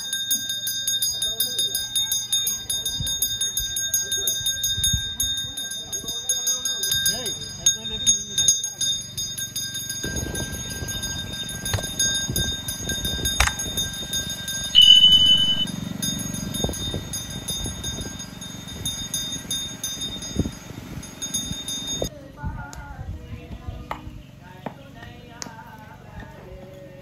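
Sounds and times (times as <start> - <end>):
bell ringing in rapid strokes: 0.0 - 22.1
people walking in procession: 14.7 - 15.7
short high-pitched tone: 14.8 - 15.7.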